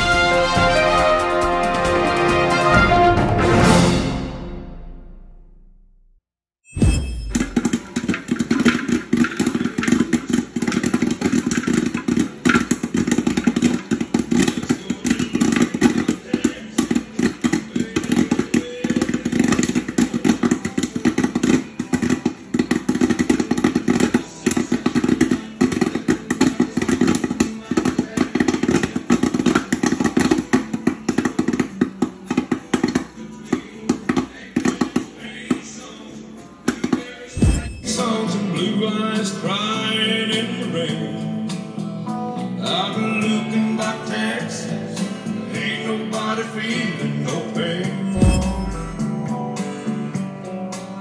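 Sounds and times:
popcorn kernels popping: 7.3 - 35.6.

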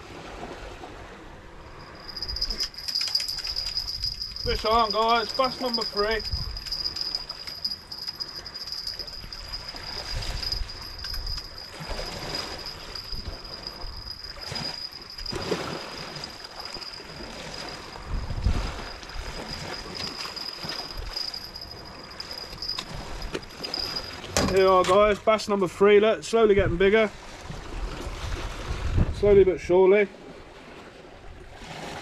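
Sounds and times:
wind on microphone: 0.0 - 25.2, 26.4 - 29.6
high-pitched insect trill: 1.7 - 24.7.

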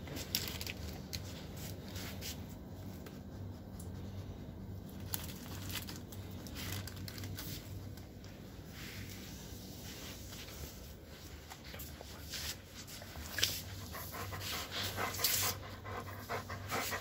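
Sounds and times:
low steady hum: 0.0 - 17.0
dog sniffing: 13.1 - 17.0.

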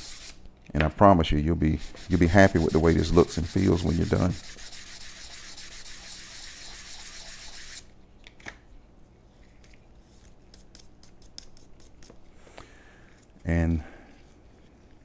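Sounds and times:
sandpaper rasping on wood: 0.0 - 0.3, 1.8 - 7.8.

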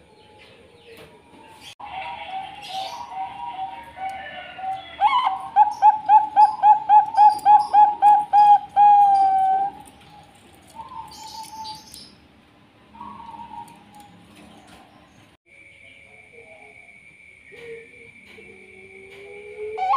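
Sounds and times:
dove cooing: 1.8 - 11.8, 17.5 - 19.9.

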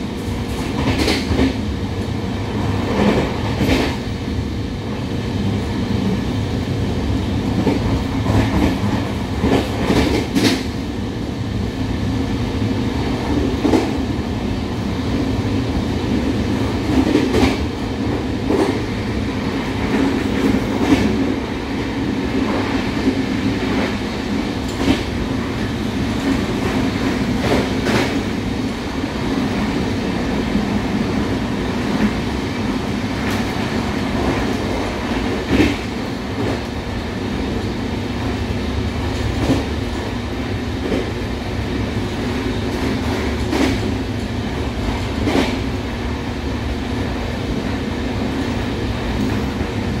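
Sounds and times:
train wheels rumbling on rails: 0.0 - 50.0.

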